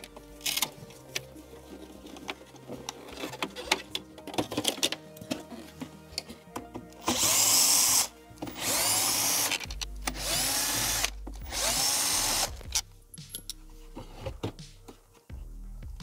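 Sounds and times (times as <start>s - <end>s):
plastic parts clicking and knocking: 2.0s - 7.2s
cordless drill motor whine: 7.0s - 12.6s.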